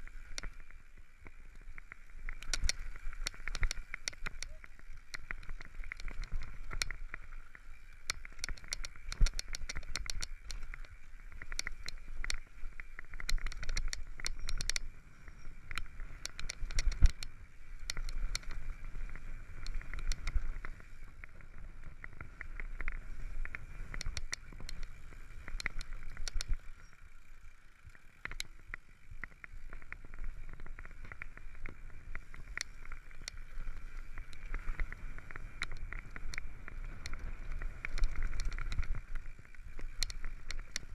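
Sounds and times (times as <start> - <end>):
bike rattling: 0.0 - 40.9
bike tyres crunching over stones: 0.0 - 40.9
sharp clicks and knocks: 2.4 - 7.0, 8.0 - 12.4, 13.1 - 14.9, 15.7 - 18.6, 22.8 - 24.9, 25.5 - 26.6.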